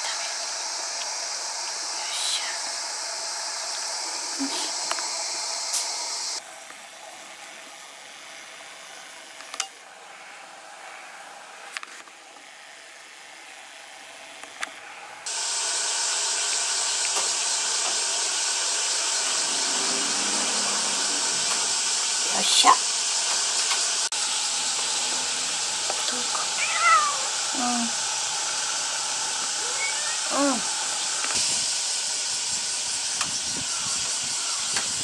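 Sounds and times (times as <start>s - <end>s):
loud steady hiss: 0.0s - 6.4s, 15.0s - 35.0s.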